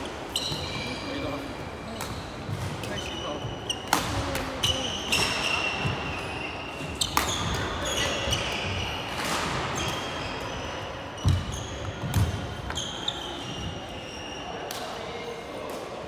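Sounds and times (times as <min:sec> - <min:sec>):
shoes squeaking on wooden floor: 0:00.0 - 0:03.9, 0:09.8 - 0:14.4.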